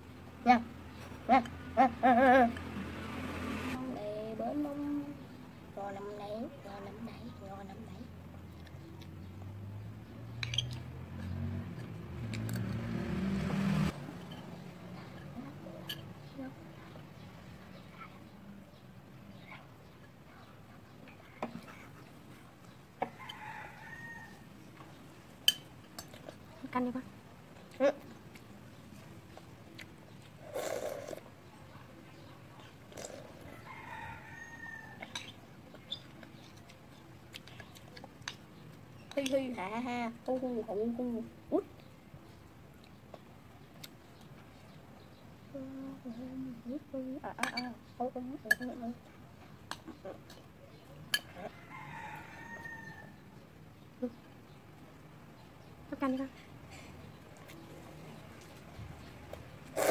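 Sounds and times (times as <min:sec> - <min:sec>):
passing vehicle engine: 0:00.8 - 0:05.3, 0:08.0 - 0:17.8.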